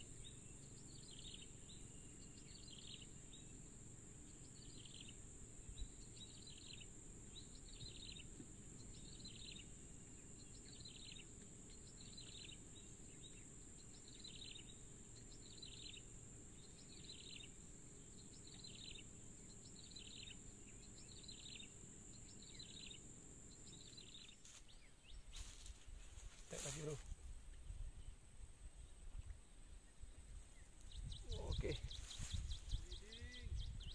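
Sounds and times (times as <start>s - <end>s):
short insect chirp: 0.0s - 33.9s.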